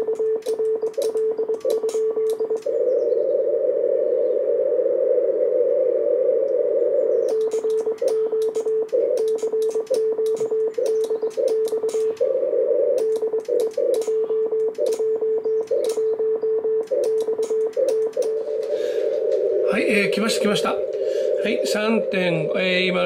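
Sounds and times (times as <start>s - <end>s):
keying clicks: 0.0s - 2.7s, 7.3s - 12.3s, 12.9s - 19.5s
morse code tone: 0.0s - 3.2s, 7.0s - 23.0s
radio band noise hiss: 0.0s - 23.0s.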